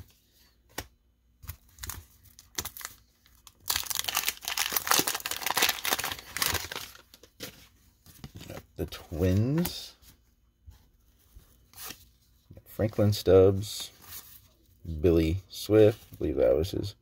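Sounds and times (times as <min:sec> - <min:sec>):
wax paper wrapper tearing: 0:01.8 - 0:07.0.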